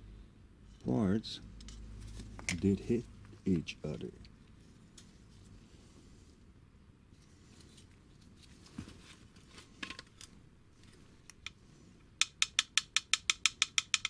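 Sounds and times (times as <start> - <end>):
rapid sharp metallic clicks: 12.2 - 14.0.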